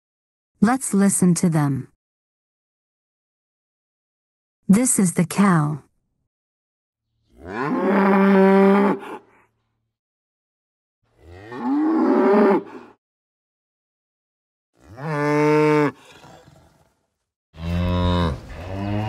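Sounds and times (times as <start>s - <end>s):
cow mooing: 7.3s - 9.2s, 11.1s - 12.8s, 14.8s - 16.9s, 17.6s - 19.0s.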